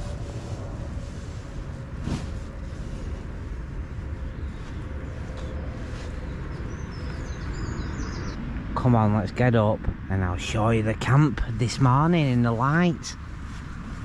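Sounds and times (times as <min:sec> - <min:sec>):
road traffic rumble: 0:00.0 - 0:14.0
brief rustle: 0:02.0 - 0:03.1
birds chirping: 0:04.2 - 0:09.3.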